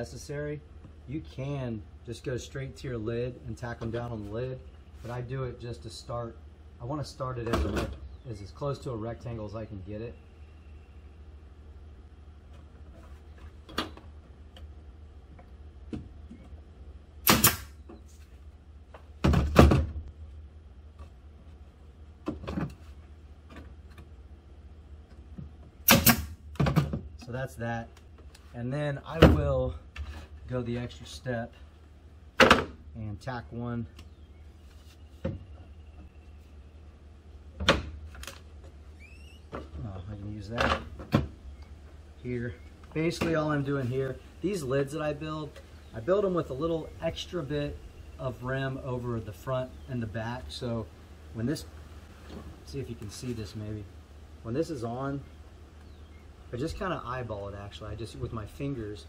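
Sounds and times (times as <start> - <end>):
nail stapler loud bangs: 17.2 - 17.8, 25.8 - 26.4.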